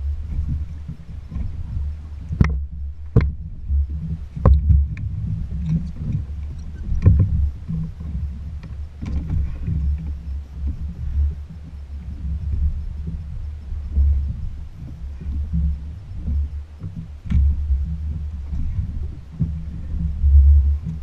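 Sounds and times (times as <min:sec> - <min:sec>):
jet ski engine low rumble: 0:00.0 - 0:21.0
sharp knocks against hull: 0:02.3 - 0:03.4, 0:04.4 - 0:05.0, 0:06.9 - 0:07.5, 0:16.3 - 0:17.6.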